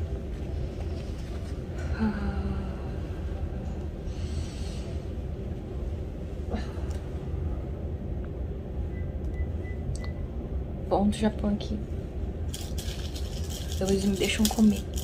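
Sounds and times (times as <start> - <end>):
steady low rumble: 0.0 - 15.0
woman breathing heavily: 1.7 - 5.4.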